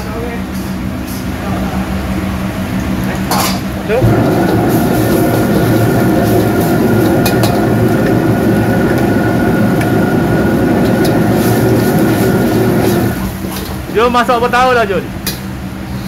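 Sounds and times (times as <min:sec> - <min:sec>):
gas burner roaring: 0:00.6 - 0:16.0
liquid boiling hard: 0:03.9 - 0:14.3.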